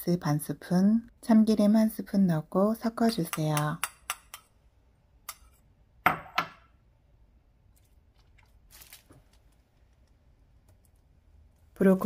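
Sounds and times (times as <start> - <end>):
bowl handling noises: 7.6 - 11.8.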